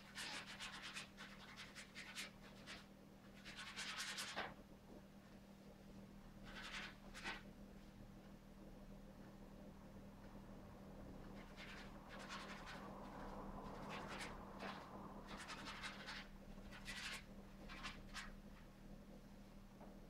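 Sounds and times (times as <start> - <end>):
low hum: 4.6 - 20.0.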